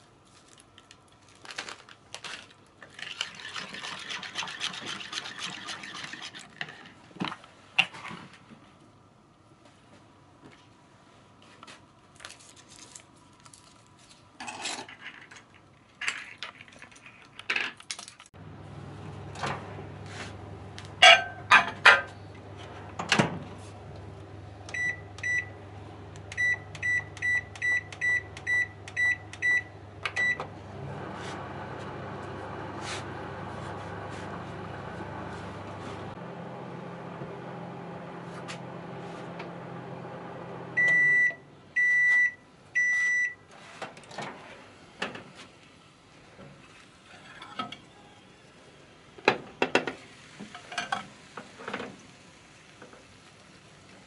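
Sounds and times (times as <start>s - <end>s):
microwave oven humming: 18.4s - 43.4s
kitchen utensils clinking: 21.0s - 22.2s, 49.8s - 51.8s.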